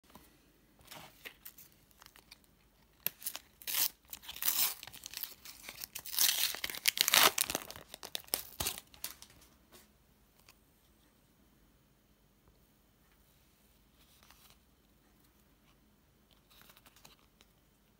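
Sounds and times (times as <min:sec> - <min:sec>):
wrapper tearing and crinkling: 0:03.0 - 0:09.3.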